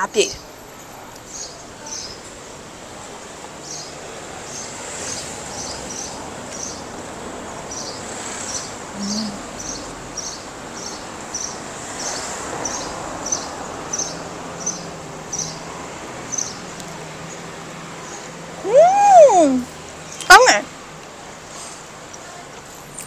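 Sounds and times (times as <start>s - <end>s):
street noise: 0.0s - 23.0s.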